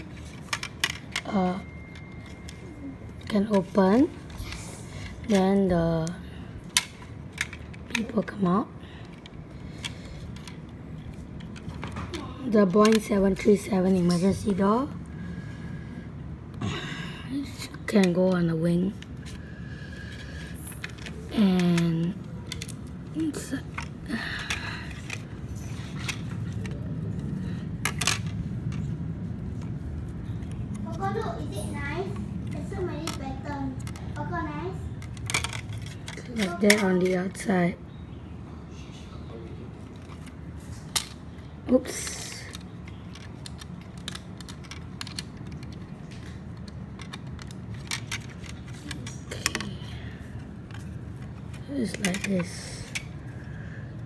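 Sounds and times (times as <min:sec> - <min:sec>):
plastic bricks clicking and clattering: 0:00.1 - 0:02.6, 0:03.2 - 0:14.6, 0:20.6 - 0:28.9, 0:35.0 - 0:37.5, 0:39.9 - 0:41.2, 0:41.8 - 0:49.8, 0:50.6 - 0:53.1
plastic bricks clicking: 0:12.6 - 0:14.5, 0:35.0 - 0:37.4, 0:41.8 - 0:49.8, 0:50.6 - 0:53.1.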